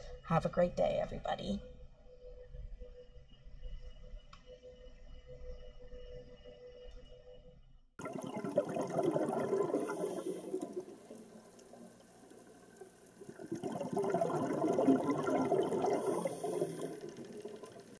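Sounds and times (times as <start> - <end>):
rushing bubbling water: 8.0 - 17.9.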